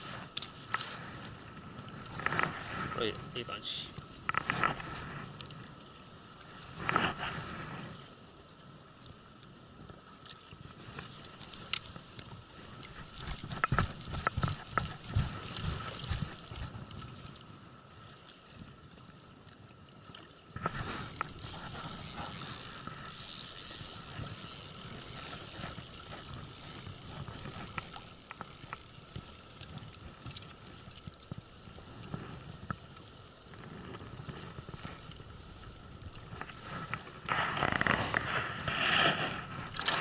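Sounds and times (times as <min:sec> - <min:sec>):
handling and scraping noises: 0:02.0 - 0:05.6, 0:06.6 - 0:08.0, 0:10.6 - 0:17.3, 0:20.6 - 0:32.8, 0:33.4 - 0:40.0
fishing reel whirring: 0:20.6 - 0:31.8.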